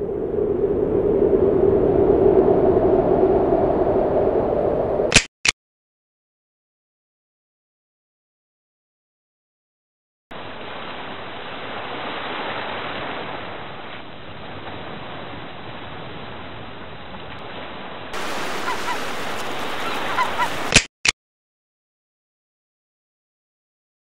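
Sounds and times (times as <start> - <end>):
sharp clicks: 5.1 - 5.6, 20.7 - 21.2
rushing water: 10.3 - 20.9.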